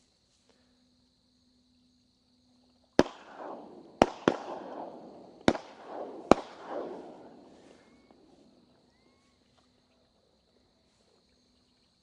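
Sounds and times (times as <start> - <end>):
high insect trill: 0.0 - 12.0
shotgun shots echoing: 3.0 - 8.6.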